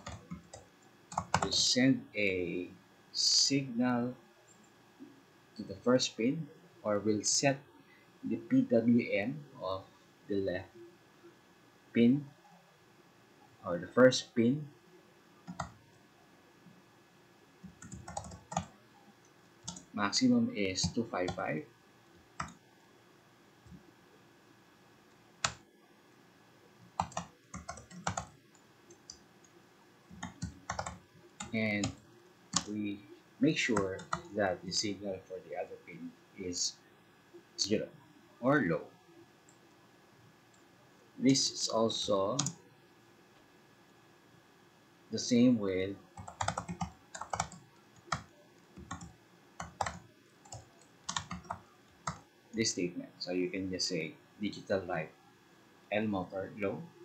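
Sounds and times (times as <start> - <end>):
computer keyboard typing: 0.0 - 1.6, 15.4 - 15.8, 17.6 - 18.7, 19.6 - 19.9, 22.4 - 22.6, 25.4 - 25.6, 27.0 - 29.2, 30.1 - 32.8, 33.7 - 34.3, 42.3 - 42.6, 46.1 - 52.2.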